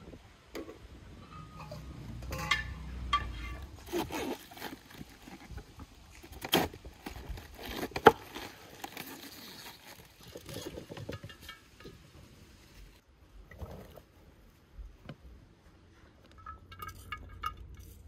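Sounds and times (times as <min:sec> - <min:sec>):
cabbage leaves crunching and rustling: 0:03.8 - 0:10.9.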